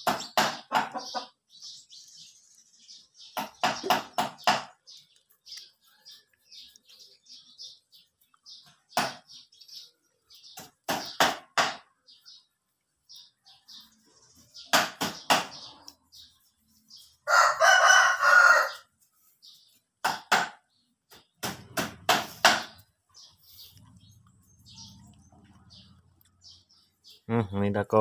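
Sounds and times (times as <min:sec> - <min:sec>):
rooster crowing: 0:17.2 - 0:18.9.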